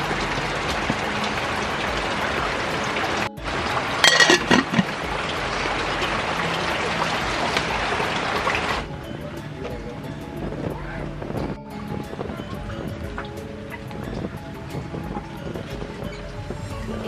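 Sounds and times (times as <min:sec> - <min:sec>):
rain hissing: 0:00.0 - 0:09.0
metal lid clattering onto pot: 0:04.0 - 0:04.9.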